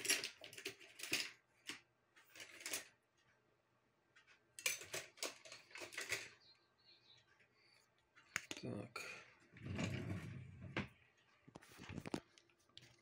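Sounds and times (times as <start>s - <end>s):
small objects rustling and clattering: 4.6s - 6.4s, 10.5s - 13.0s.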